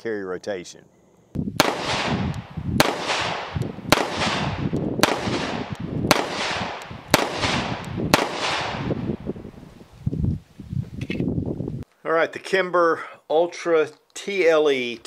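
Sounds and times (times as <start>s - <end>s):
pistol shots with echo: 1.6s - 9.1s.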